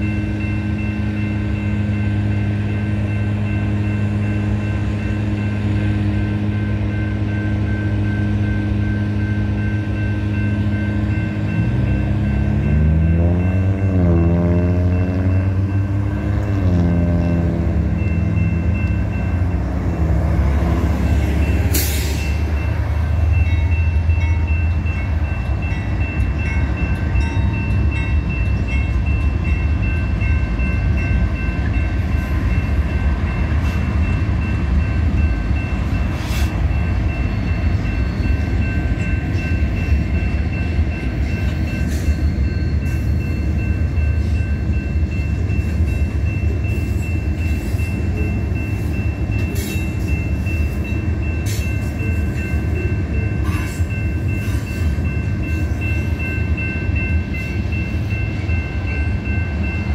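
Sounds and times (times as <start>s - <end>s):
crossing bell ringing: 0.0s - 59.9s
diesel locomotive rumble: 0.0s - 59.9s.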